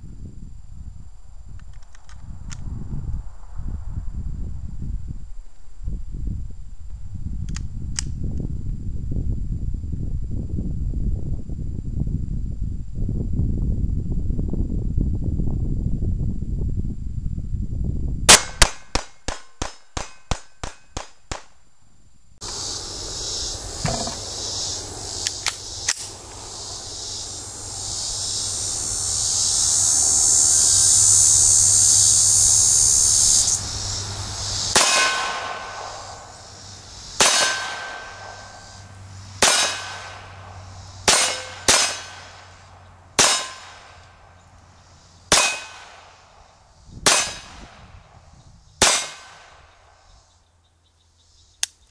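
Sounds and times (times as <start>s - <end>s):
steady high hiss: 21.5s - 51.9s
pistol shots: 39.4s - 40.2s, 41.1s - 42.4s, 43.2s - 43.9s, 45.3s - 46.1s, 47.1s - 47.5s, 48.8s - 49.6s.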